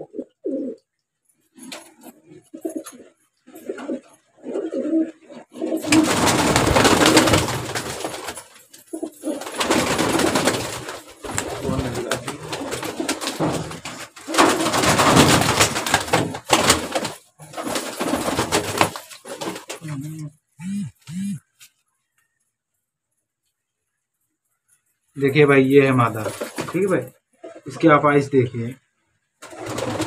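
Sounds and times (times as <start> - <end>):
pigeon cooing: 0.0 - 0.8, 2.0 - 6.1, 19.8 - 21.6
pigeons flapping wings: 5.6 - 20.1, 26.2 - 26.9, 29.4 - 30.0.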